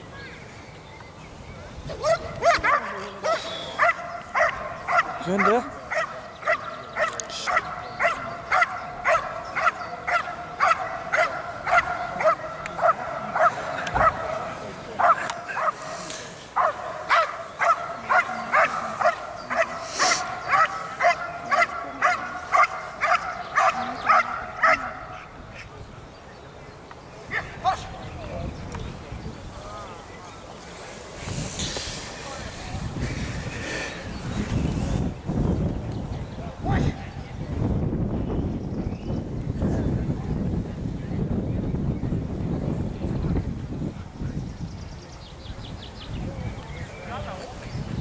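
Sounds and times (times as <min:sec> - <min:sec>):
dog barking in high-pitched yelps: 0:02.0 - 0:14.2.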